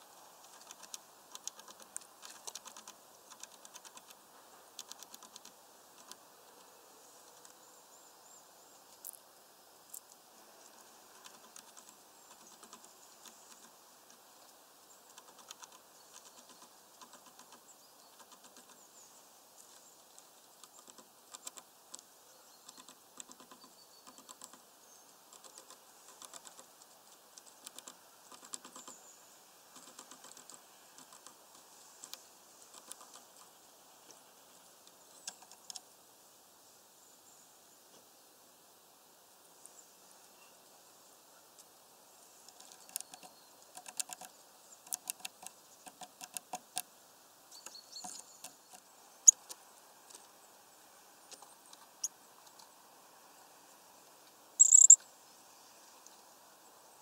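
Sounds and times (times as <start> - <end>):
bird pecking at mesh feeder: 0.4 - 6.2, 11.0 - 14.2, 15.1 - 18.8, 20.2 - 24.6, 25.3 - 29.0, 29.6 - 33.6, 35.2 - 35.8, 42.5 - 46.9.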